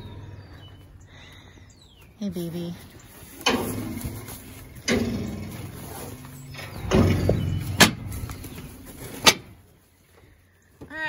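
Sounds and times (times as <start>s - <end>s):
metal gate clanking and rattling: 3.4s - 9.6s.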